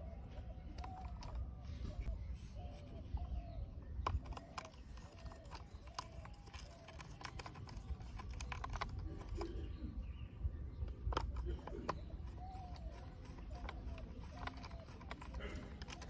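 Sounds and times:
screwdriver clicking and scraping: 4.0 - 9.6, 10.9 - 16.0.

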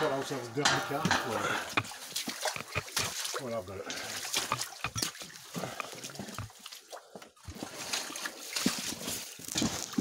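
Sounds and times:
footsteps through undergrowth: 7.5 - 10.0.

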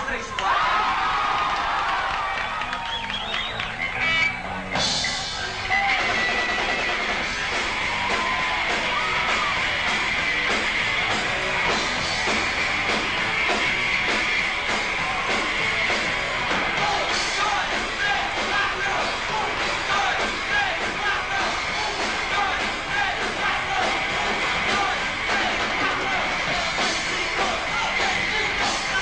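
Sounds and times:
live rock band playing: 3.0 - 29.0.

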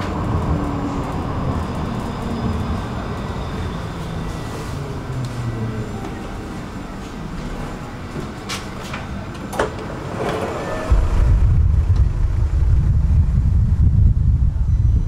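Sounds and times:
tram interior hum: 0.0 - 15.0
low rumble: 10.5 - 15.0.

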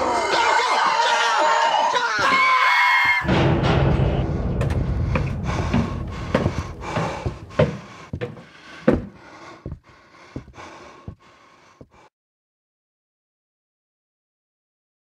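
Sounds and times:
person panting heavily: 4.3 - 12.1.

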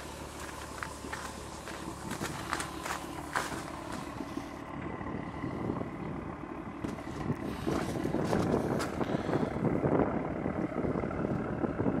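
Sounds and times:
footsteps on gravel: 0.0 - 4.6, 6.8 - 9.3
car engine idling: 0.0 - 12.0.

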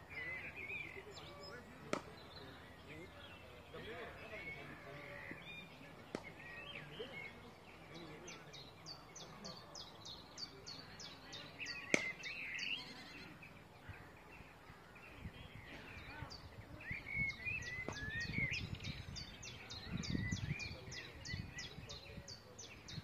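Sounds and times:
bird chirping: 0.0 - 23.0
sharp crack: 1.9 - 2.2, 11.9 - 12.3.

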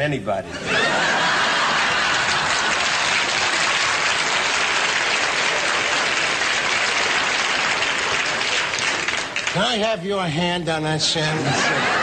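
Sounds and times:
studio audience applauding: 0.8 - 10.0.

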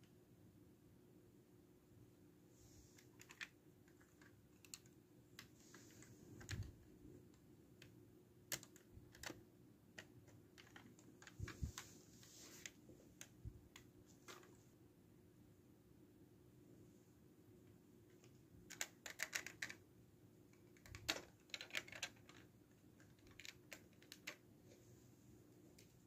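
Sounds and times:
plastic parts clicking and tapping: 3.0 - 6.7, 7.3 - 11.9, 18.2 - 19.8, 20.5 - 24.4
soft rustling: 5.3 - 7.4, 10.7 - 14.8.

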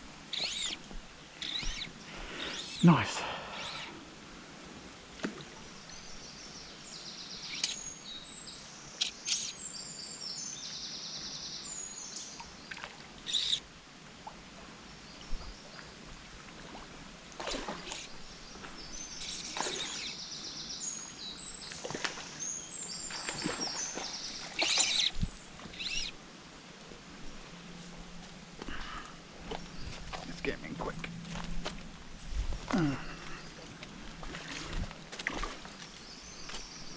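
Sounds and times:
songbirds singing: 0.0 - 4.0, 5.5 - 13.7, 17.4 - 26.2, 28.6 - 31.4, 32.6 - 36.9.

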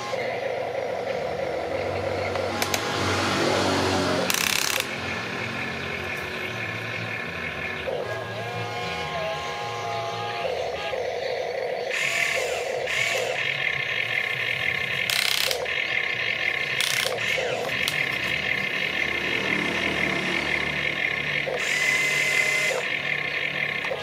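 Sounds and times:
electric motors whirring: 0.0 - 24.0
gears grinding: 0.0 - 24.0.

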